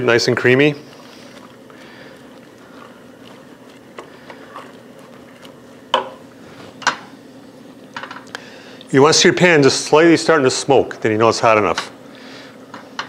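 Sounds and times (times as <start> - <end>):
wooden spoon scraping pot: 0.2 - 7.1.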